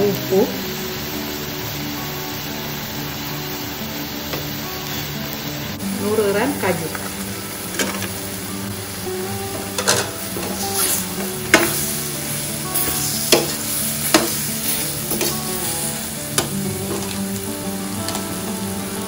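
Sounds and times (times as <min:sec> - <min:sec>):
masala sizzling in a pan: 0:00.0 - 0:19.0
utensil knocking against pan: 0:11.5 - 0:11.8.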